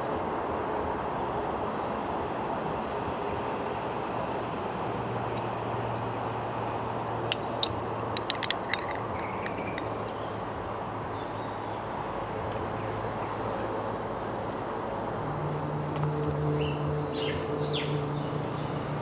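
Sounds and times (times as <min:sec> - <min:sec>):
steady background noise: 0:00.0 - 0:19.0
metal spoon clinking glass bowl: 0:07.3 - 0:09.8.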